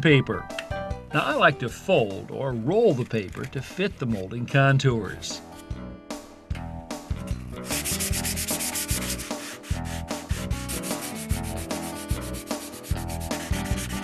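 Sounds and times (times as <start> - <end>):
sandpaper rubbing back and forth: 7.6 - 14.0.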